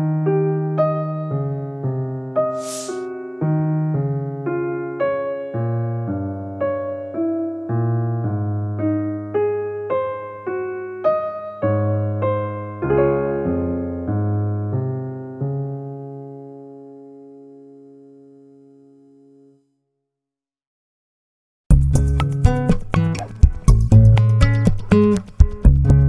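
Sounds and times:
slow solo piano music: 0.0s - 19.0s.

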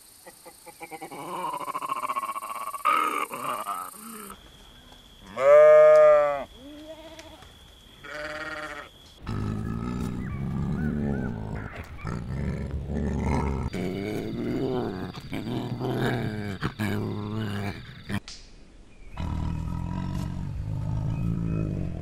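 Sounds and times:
sheep bleating: 8.0s - 8.9s
tiger growling: 9.2s - 18.2s, 19.1s - 22.0s.

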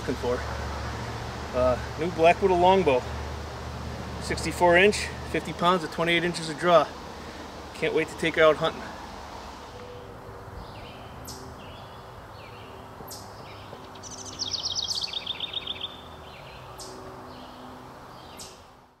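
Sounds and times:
birds chirping: 0.0s - 18.8s
bird trill: 10.6s - 18.6s.

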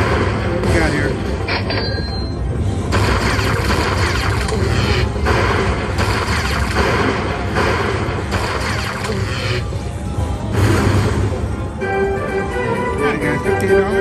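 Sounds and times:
slot machine electronic music: 0.0s - 14.0s
lightning strike effects: 2.9s - 9.6s, 10.5s - 11.6s.

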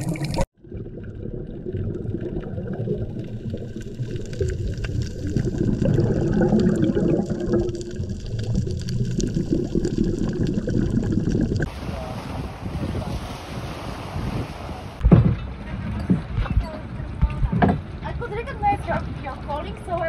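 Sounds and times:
water churning underwater: 0.0s - 16.0s
wind on microphone: 10.8s - 18.0s.

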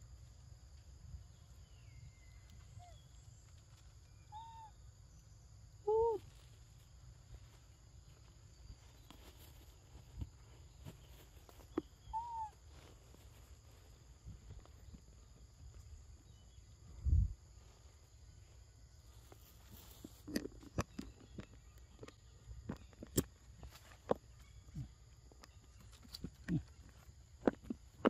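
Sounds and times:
high insect drone: 0.0s - 20.6s
monkey coo calls: 4.3s - 4.8s, 12.0s - 12.6s.

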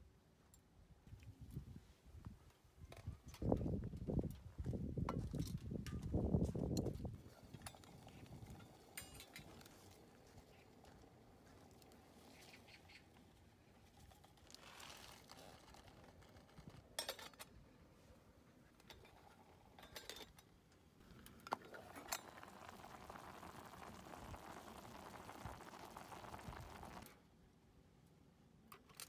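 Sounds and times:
noodles bubbling in a pot: 21.0s - 27.2s.

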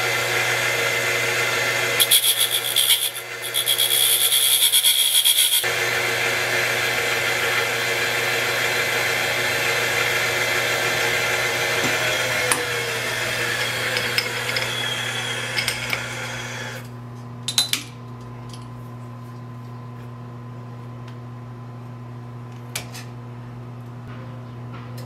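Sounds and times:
motor humming: 0.0s - 16.9s
grinding wheel hiss: 2.0s - 5.7s, 10.8s - 16.8s.

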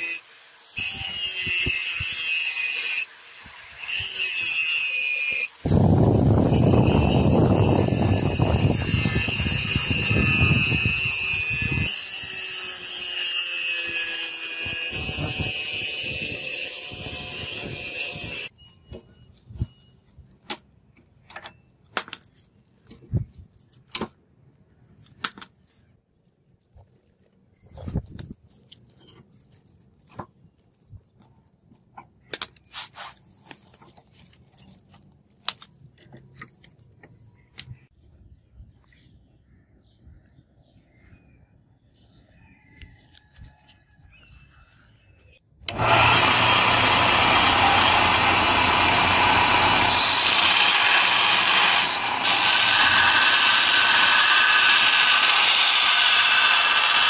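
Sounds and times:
grinding rasp cutting steel: 0.0s - 18.5s, 45.7s - 57.0s
angle grinder whine: 3.8s - 12.4s, 13.7s - 18.5s, 45.7s - 57.0s.

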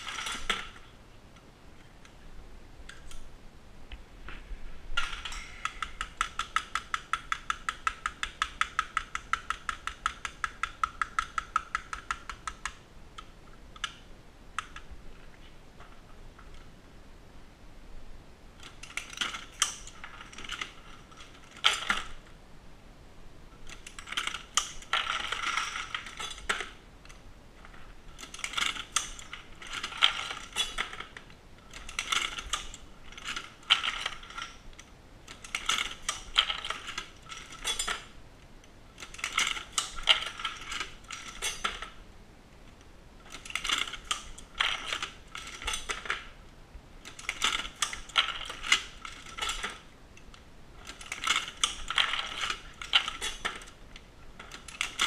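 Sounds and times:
reloading press metallic clicking: 23.6s - 26.8s, 28.2s - 38.1s, 39.0s - 42.0s, 43.2s - 46.3s, 47.0s - 49.8s, 50.8s - 53.8s.

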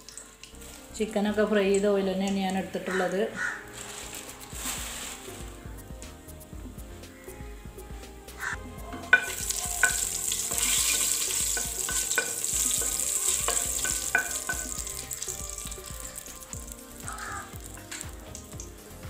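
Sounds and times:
spices sizzling in hot oil: 2.9s - 7.4s, 8.2s - 19.0s.

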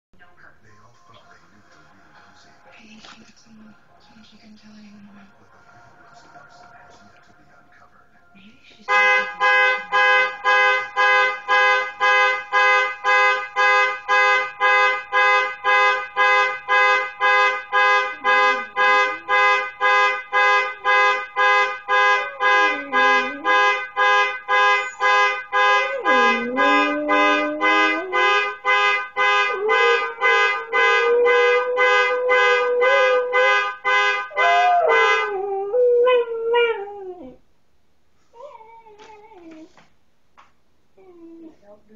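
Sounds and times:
car horn alarm honking: 8.8s - 35.8s
dog howling: 25.8s - 28.2s, 34.3s - 37.4s.

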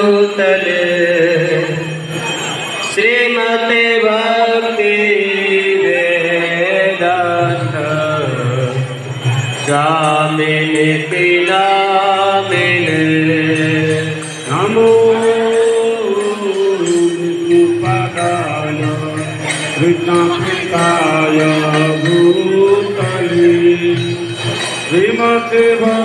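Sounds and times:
devotional chanting: 0.0s - 26.0s.

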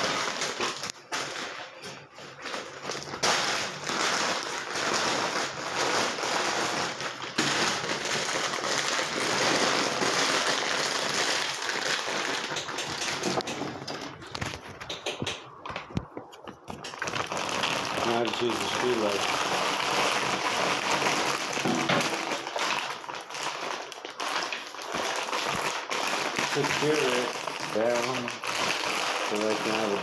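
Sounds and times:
plastic bags rustling and crinkling: 0.0s - 30.0s.

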